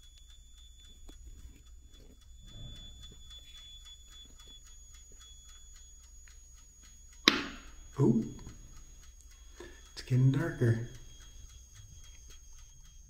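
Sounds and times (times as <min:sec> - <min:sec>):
toaster oven ticking: 0:00.0 - 0:13.0
sharp pop or knock: 0:07.3 - 0:07.6.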